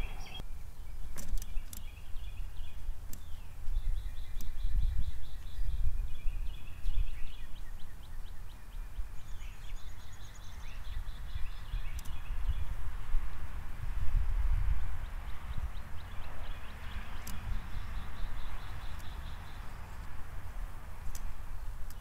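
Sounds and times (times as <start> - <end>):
songbird singing high notes: 0.0 - 0.4
low wind rumble on microphone: 0.0 - 22.0
sharp clicks: 11.9 - 12.2, 17.2 - 17.4.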